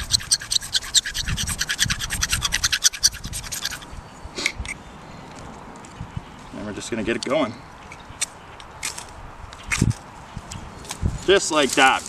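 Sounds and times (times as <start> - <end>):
striker scraping fire-starter block: 0.0 - 3.8
striker scraping flint: 0.0 - 4.8, 7.9 - 10.0.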